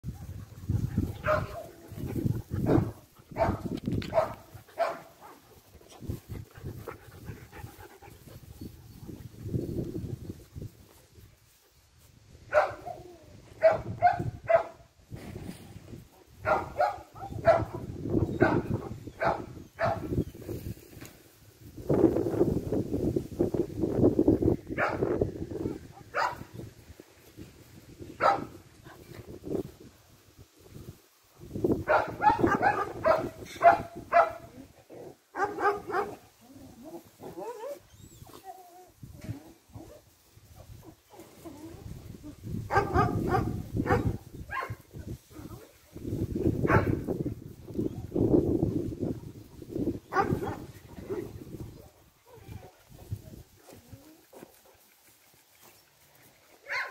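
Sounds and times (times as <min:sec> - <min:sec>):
dog barking: 0:01.2 - 0:01.7, 0:02.6 - 0:05.4, 0:12.5 - 0:13.0, 0:13.6 - 0:14.8, 0:16.4 - 0:20.1, 0:24.8 - 0:25.0, 0:26.1 - 0:26.4, 0:28.2 - 0:28.5, 0:31.9 - 0:34.5, 0:35.3 - 0:36.2, 0:42.7 - 0:44.8, 0:46.7 - 0:47.0, 0:50.1 - 0:50.7, 0:56.6 - 0:56.9
dogs yipping and whining: 0:37.2 - 0:40.0.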